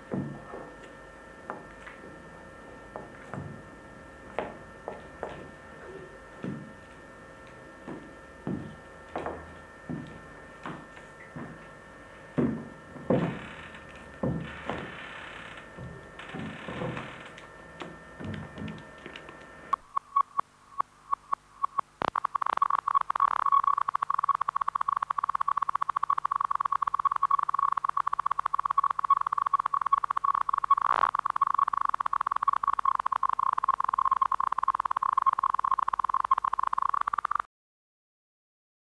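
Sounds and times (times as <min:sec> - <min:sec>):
electronic beeps: 0:13.1 - 0:37.5.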